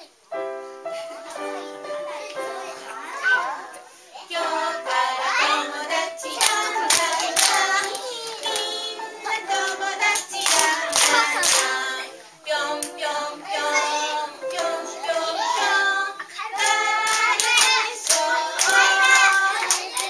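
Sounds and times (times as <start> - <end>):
group singing: 4.2 - 20.0
hands clapping: 6.3 - 11.9, 16.5 - 20.0.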